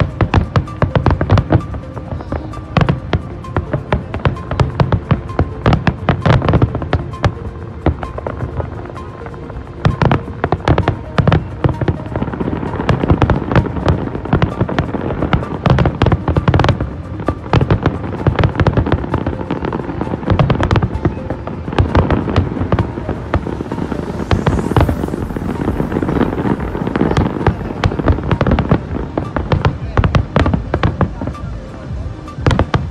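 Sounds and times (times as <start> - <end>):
rising firework whistle: 0.0 - 31.6
fireworks crackling: 0.0 - 32.9
fireworks bangs: 9.8 - 31.5.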